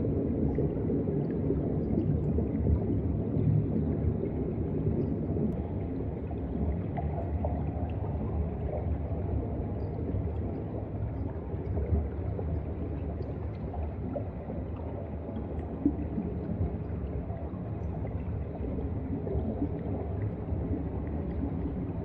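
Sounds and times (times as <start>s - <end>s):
underwater rumble of seawater: 0.0s - 22.0s.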